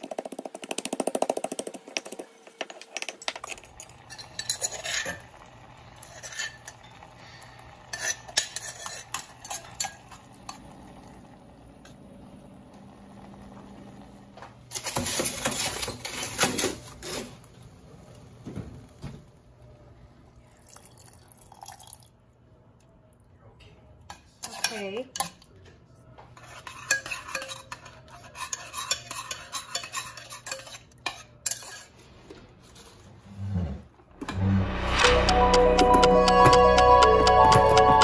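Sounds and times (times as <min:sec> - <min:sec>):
rapid scraping and clinking: 0:00.8 - 0:05.4, 0:06.0 - 0:07.1
metal spoon clinking in saucepan: 0:03.0 - 0:05.4, 0:06.0 - 0:07.1, 0:07.9 - 0:10.7, 0:24.1 - 0:25.4, 0:26.4 - 0:31.9.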